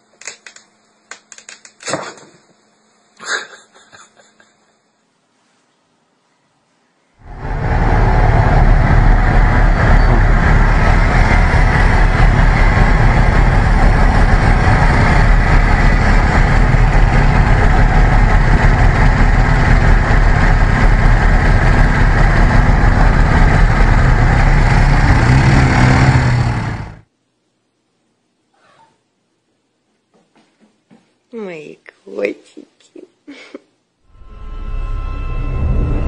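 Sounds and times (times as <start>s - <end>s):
loud motor traffic: 7.2s - 27.0s.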